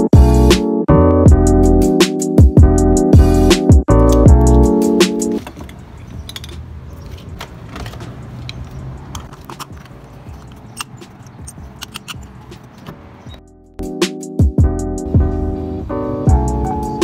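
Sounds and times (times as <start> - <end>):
fuel nozzle clicks and rattles: 4.0 - 4.7, 5.4 - 13.4
plastic fuel cap screwing on: 5.4 - 13.0.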